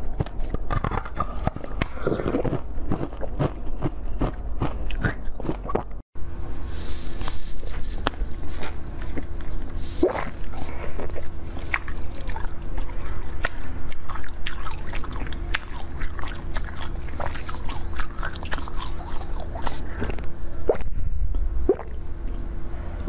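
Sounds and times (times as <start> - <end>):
crunching ice being chewed: 0.0 - 5.9, 8.0 - 20.3
steady low hum: 0.0 - 23.0.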